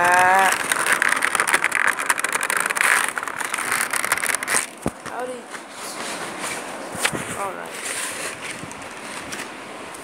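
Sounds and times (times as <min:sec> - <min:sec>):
plastic packaging crinkling: 0:00.0 - 0:05.3.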